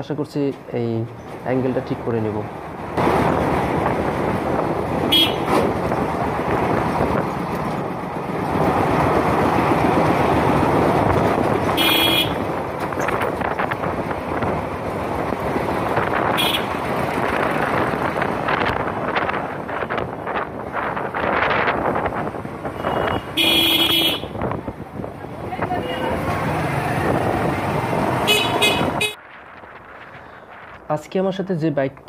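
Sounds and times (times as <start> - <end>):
motorcycle road noise: 0.0 - 31.1
wind noise: 2.9 - 31.1
vehicle horn beeps: 5.1 - 5.6, 11.8 - 12.4, 16.4 - 16.7, 22.8 - 24.4, 28.3 - 29.2.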